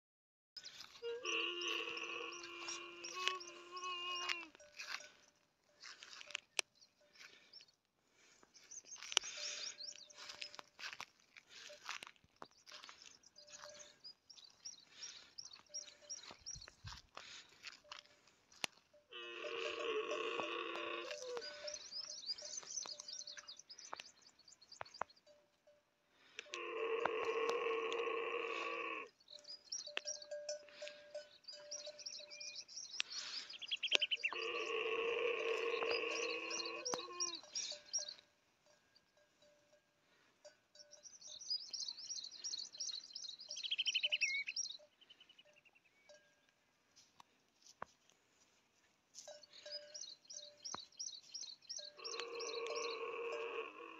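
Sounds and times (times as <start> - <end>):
bird trill: 0.6 - 7.8, 8.6 - 11.0, 19.4 - 25.4, 28.6 - 39.7, 40.7 - 46.5, 49.2 - 53.9
small birds chirping: 0.6 - 25.4, 26.6 - 39.6, 40.7 - 46.6, 49.2 - 53.9
camel bleating call: 0.8 - 5.2, 19.0 - 21.9, 26.5 - 29.2, 34.1 - 38.1, 51.8 - 53.9.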